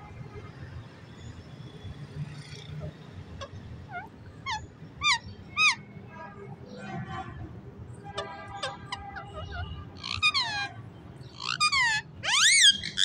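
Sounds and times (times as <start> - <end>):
parakeet chatter: 2.7 - 5.8, 8.5 - 13.0
parakeet screeching calls: 3.4 - 5.8, 8.5 - 13.0.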